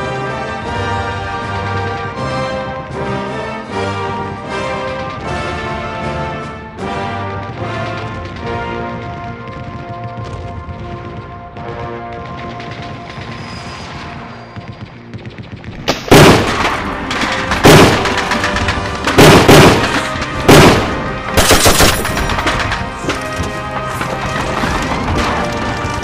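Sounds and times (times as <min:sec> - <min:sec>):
gunshots and rapid fire: 0:07.4 - 0:23.4.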